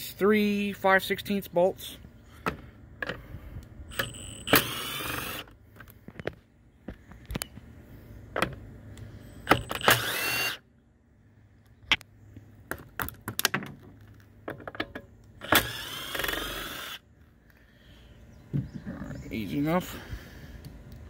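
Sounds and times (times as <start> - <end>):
power drill spinning out bolts: 3.9 - 5.5, 9.5 - 10.6, 15.4 - 17.0.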